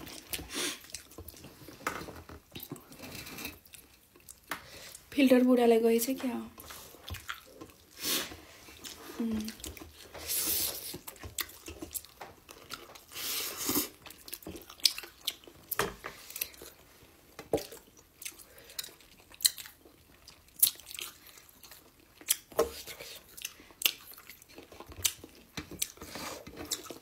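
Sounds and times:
wet chewing and lip smacks: 0.0 - 1.6, 3.6 - 4.7, 6.6 - 8.0, 10.8 - 13.2, 13.8 - 16.8, 17.6 - 26.0.

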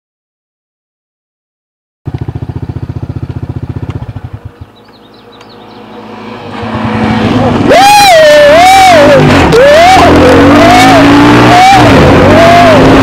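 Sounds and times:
atv engine idling: 2.1 - 5.8.

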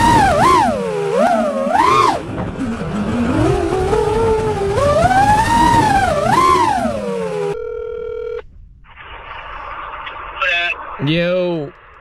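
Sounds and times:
drone motors whining: 0.0 - 7.6
steady phone tone: 7.4 - 8.4.

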